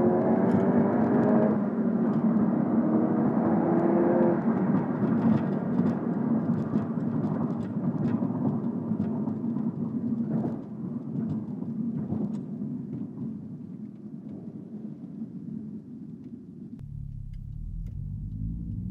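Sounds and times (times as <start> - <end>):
car engine from inside cabin: 16.8 - 18.9.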